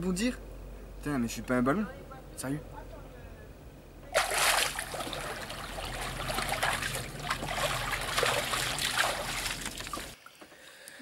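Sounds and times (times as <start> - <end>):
pool water splashing: 4.1 - 10.2.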